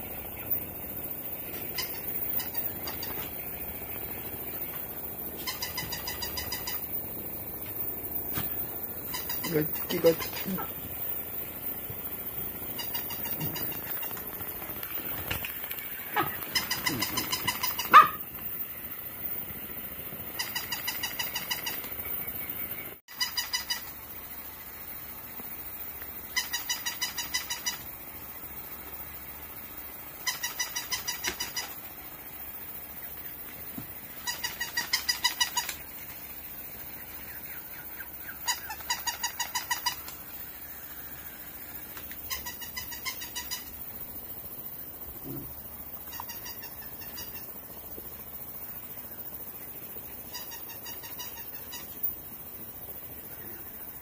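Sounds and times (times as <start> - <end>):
dog toy chirping trill: 1.7 - 3.2, 5.4 - 7.1, 12.7 - 14.1, 16.1 - 18.3, 20.4 - 21.8, 23.1 - 24.0, 26.3 - 27.8, 30.2 - 31.8, 34.2 - 35.7, 38.4 - 40.1, 42.2 - 43.8.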